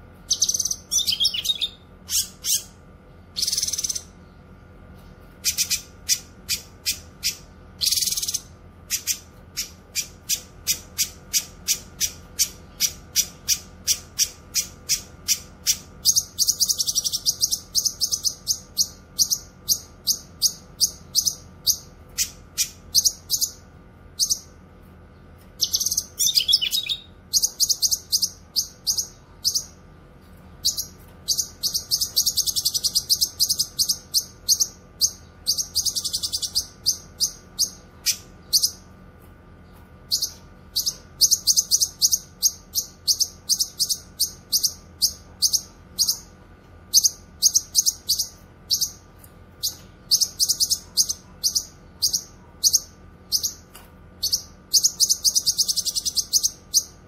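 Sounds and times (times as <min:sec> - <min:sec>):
bird singing sharp high chirps: 0:00.3 - 0:04.2, 0:05.4 - 0:23.6, 0:25.6 - 0:29.8, 0:30.6 - 0:38.8, 0:54.2 - 0:57.0.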